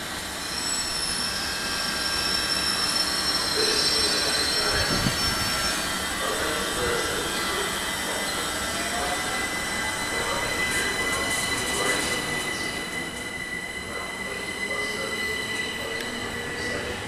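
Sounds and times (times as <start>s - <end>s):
train rumbling: 0.0s - 17.0s.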